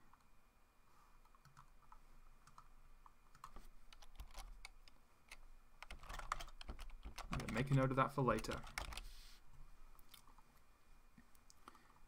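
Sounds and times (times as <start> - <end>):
computer keyboard clicks: 3.3 - 7.8, 8.4 - 9.0.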